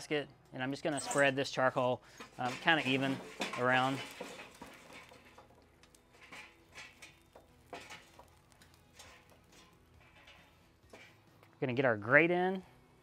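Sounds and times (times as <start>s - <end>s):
charcoal clicking and crackling: 2.1s - 11.6s.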